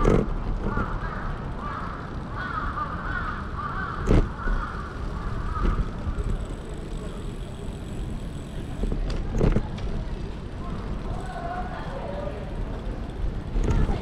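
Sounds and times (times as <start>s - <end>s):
street background noise: 0.0s - 14.0s
crows cawing: 0.7s - 6.0s.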